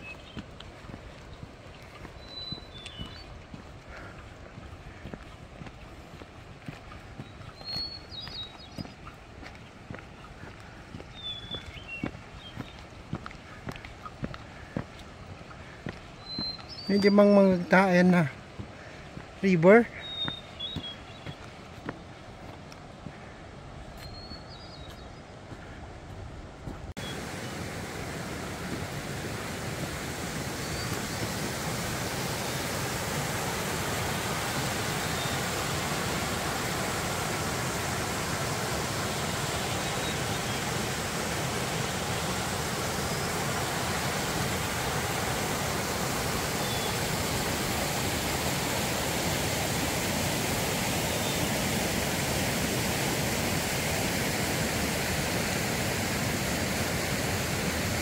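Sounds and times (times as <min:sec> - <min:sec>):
creek rushing over rocks: 0:00.0 - 0:23.2, 0:26.7 - 0:58.0.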